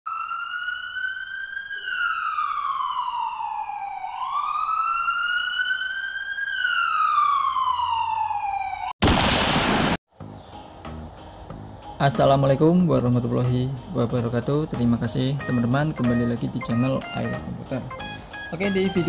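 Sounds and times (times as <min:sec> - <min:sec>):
siren wailing: 0:00.1 - 0:09.0.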